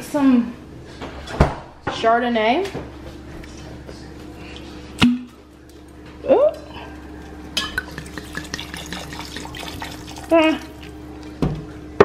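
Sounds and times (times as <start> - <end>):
spoon stirring in a pan: 7.6 - 11.0.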